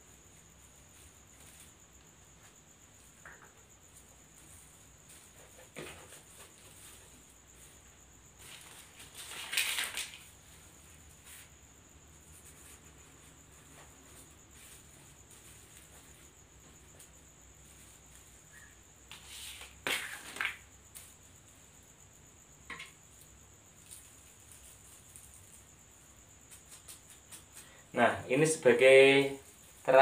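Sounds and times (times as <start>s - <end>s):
rustling of artificial flowers: 0.2s - 3.2s, 3.8s - 21.4s, 23.7s - 28.0s
thin steady high whine: 10.3s - 30.0s.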